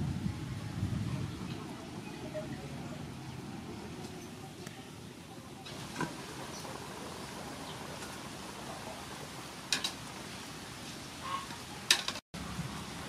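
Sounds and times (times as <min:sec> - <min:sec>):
soup boiling: 0:05.7 - 0:11.1.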